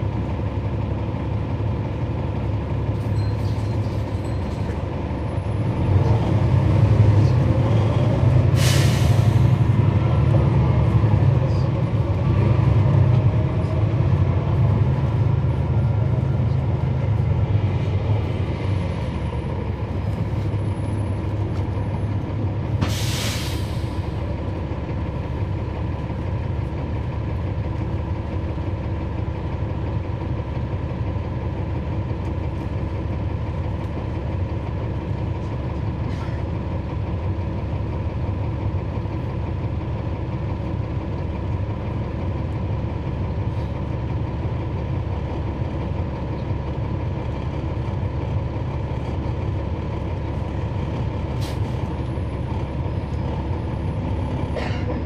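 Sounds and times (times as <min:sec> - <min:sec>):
bus diesel engine drone: 0:00.0 - 0:55.0.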